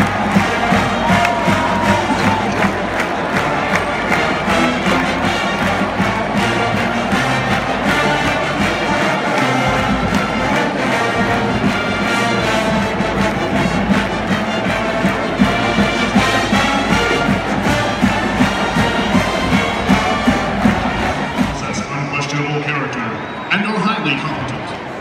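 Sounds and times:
brass section playing loudly: 0:00.0 - 0:22.4.

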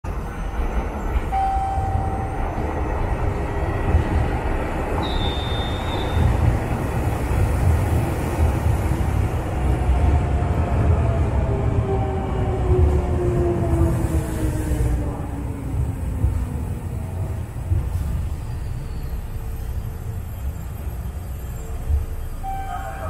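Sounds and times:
train low rumble: 0:00.0 - 0:23.0
train whine: 0:00.1 - 0:23.0
high squeal: 0:05.0 - 0:06.4.

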